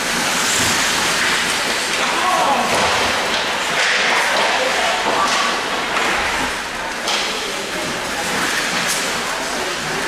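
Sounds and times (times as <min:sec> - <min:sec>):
skate blades scraping ice: 0:00.0 - 0:06.5.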